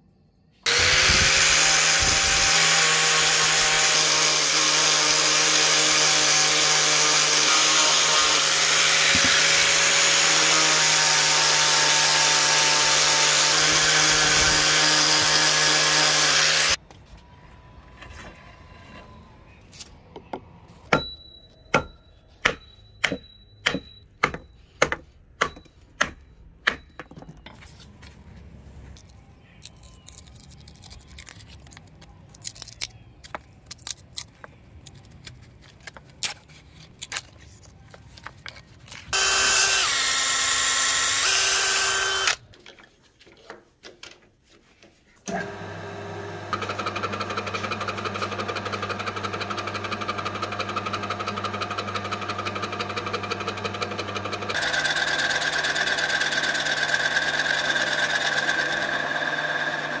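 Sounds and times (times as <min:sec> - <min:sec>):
lathe cutting wood: 0:00.7 - 0:16.8, 0:39.2 - 0:42.4, 0:45.3 - 1:00.0
power tool running: 0:00.7 - 0:16.8, 0:39.1 - 0:42.4, 0:45.3 - 1:00.0.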